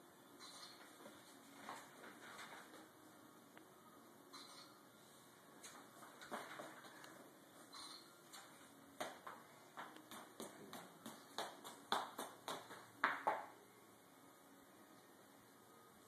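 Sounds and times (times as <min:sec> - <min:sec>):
toddler footsteps on wood floor: 0:05.8 - 0:07.7, 0:09.0 - 0:13.5.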